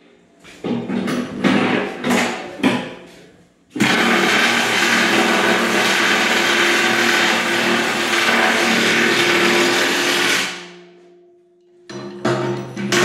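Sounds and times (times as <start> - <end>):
power tool motor running: 3.8 - 10.6.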